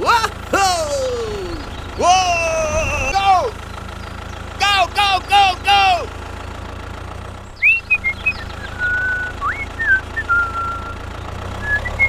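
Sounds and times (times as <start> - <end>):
low engine hum: 0.0 - 12.0
person whistling: 7.6 - 11.0, 11.6 - 12.0.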